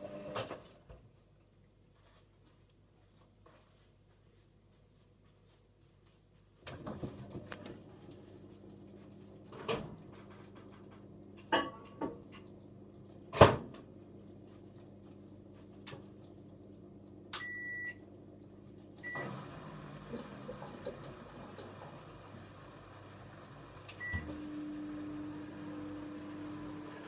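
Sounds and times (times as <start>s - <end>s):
drain pump humming: 19.0s - 27.0s.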